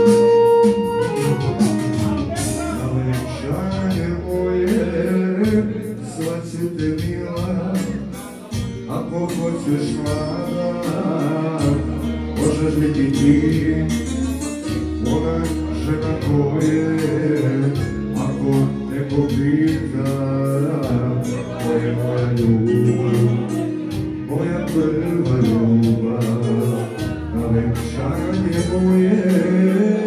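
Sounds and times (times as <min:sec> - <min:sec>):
steady drum beat: 0:00.0 - 0:12.0
deep bass line: 0:00.0 - 0:30.0
live band music: 0:00.0 - 0:30.0.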